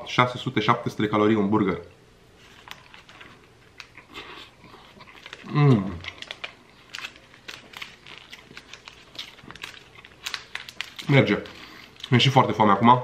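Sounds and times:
paper wrapper crackling: 2.4s - 4.1s, 4.9s - 13.0s
person biting and chewing: 3.7s - 12.1s
low voiced sound: 5.4s - 6.1s.

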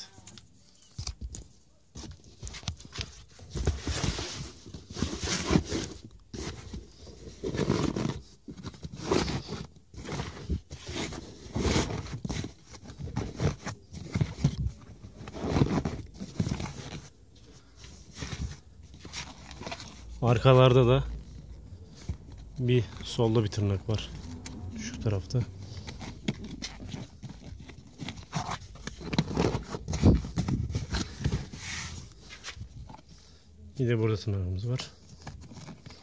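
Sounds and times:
floor mat rustling against carpet: 24.4s - 33.1s.

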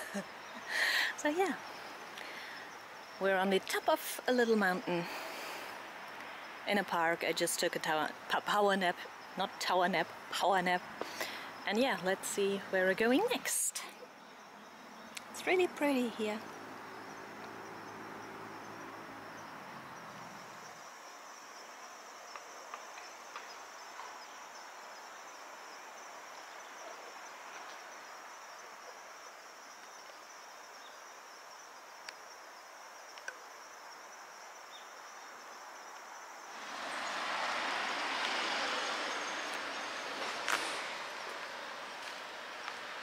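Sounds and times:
high-pitched insect chorus: 0.0s - 43.0s
faint clicks: 33.1s - 33.4s
even rush of noise: 36.4s - 43.0s.

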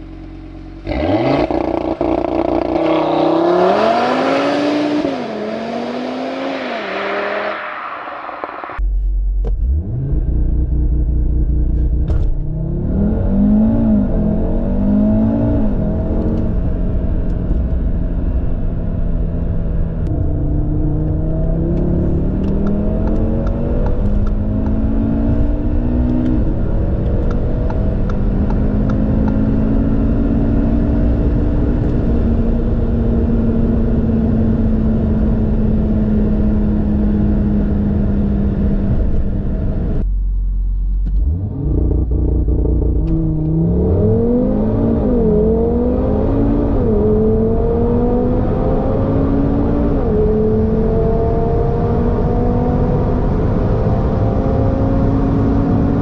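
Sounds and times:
car engine accelerating hard: 0.0s - 8.8s, 9.4s - 40.1s, 41.0s - 56.0s.

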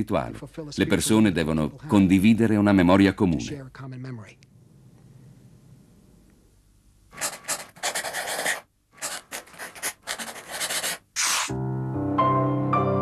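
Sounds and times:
pen scratching on paper: 7.2s - 11.5s
music: 11.5s - 13.0s.

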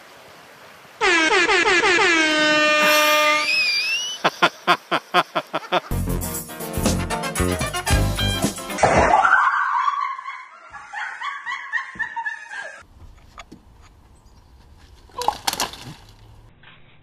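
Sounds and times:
woman shrieking and laughing: 3.4s - 5.9s, 9.1s - 12.8s.

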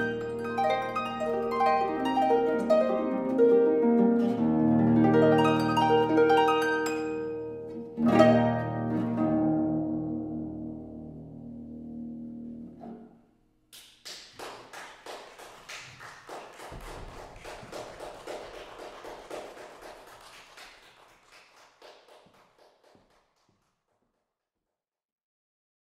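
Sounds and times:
audience clapping: 13.7s - 24.0s.

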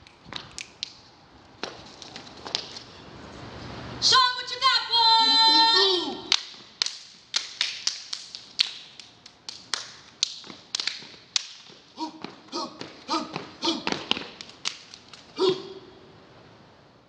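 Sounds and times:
hand claps and body slaps: 0.0s - 1.0s, 6.3s - 15.4s.

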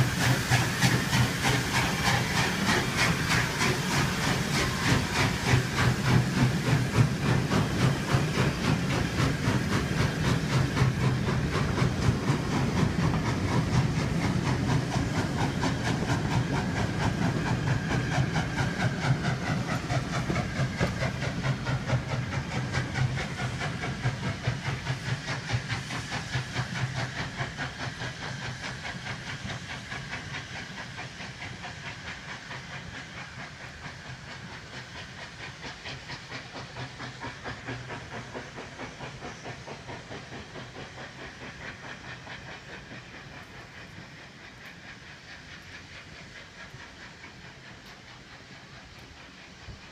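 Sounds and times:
steam hissing: 0.0s - 49.9s
steam locomotive chuffing: 0.0s - 49.9s.

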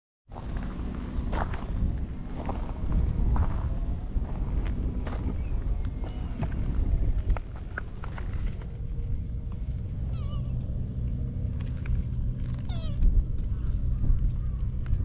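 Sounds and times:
wind rumble on microphone: 0.3s - 15.0s
cat meowing: 10.1s - 10.6s, 12.6s - 13.1s.

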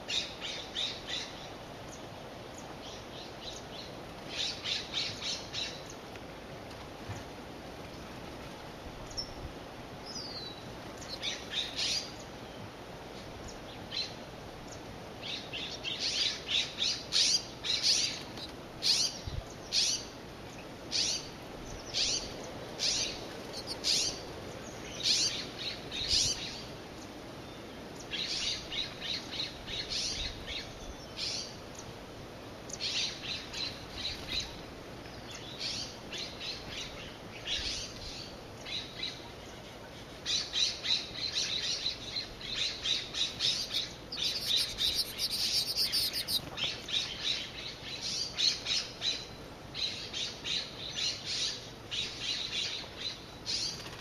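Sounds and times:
birds chattering: 14.7s - 27.2s, 38.6s - 53.9s.

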